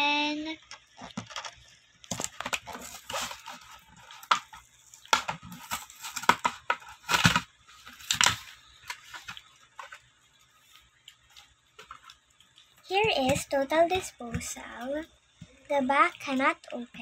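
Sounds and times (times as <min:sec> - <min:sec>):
plastic packaging crackling: 0:00.8 - 0:13.4
cardboard ripping: 0:02.1 - 0:09.4.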